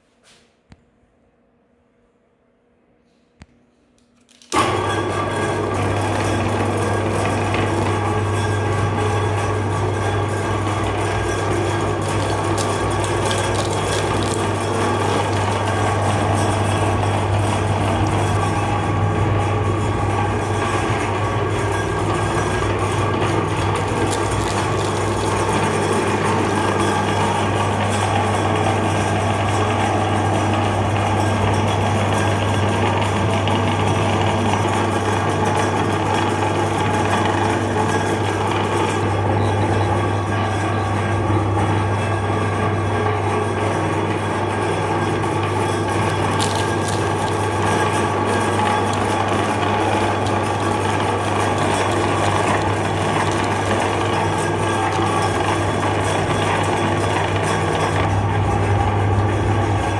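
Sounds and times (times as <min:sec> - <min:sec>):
electric meat grinder humming: 0:04.5 - 0:59.9
auger grinding ice and wood: 0:04.6 - 0:59.9.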